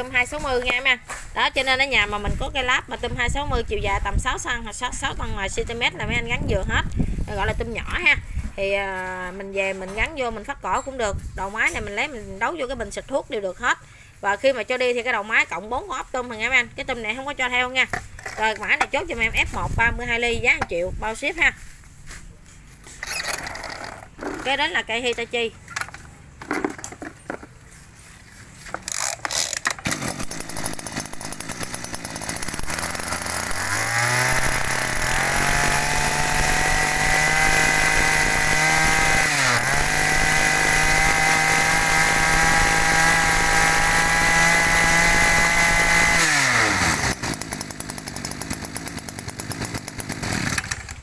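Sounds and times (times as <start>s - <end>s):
brush cutter engine revving: 22.9s - 24.7s, 28.8s - 51.0s.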